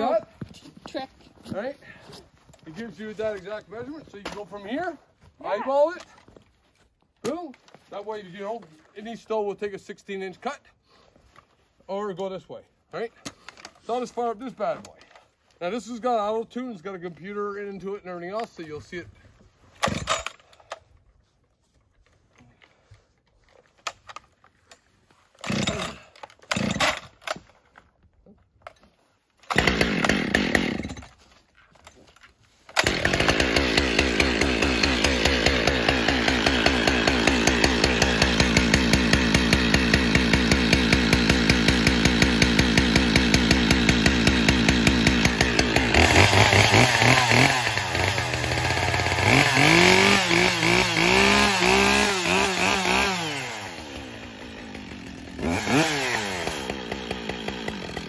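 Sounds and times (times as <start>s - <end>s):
chainsaw starting and idling: 19.8s - 20.8s, 25.4s - 27.4s, 29.4s - 31.2s, 32.5s - 58.0s.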